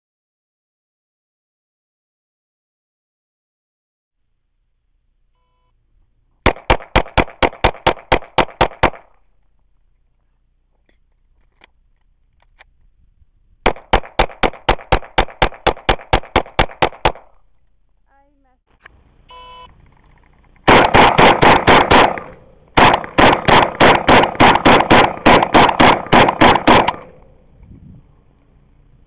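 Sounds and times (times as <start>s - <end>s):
pistol fired rapidly: 6.4s - 9.2s, 13.6s - 17.4s, 20.7s - 27.3s.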